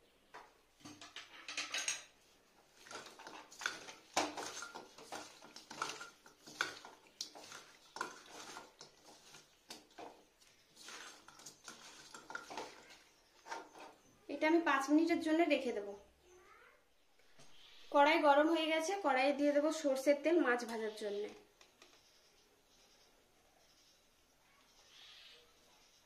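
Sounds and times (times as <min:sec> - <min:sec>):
fish clinking in metal bowl: 0:02.8 - 0:10.1, 0:10.8 - 0:13.0.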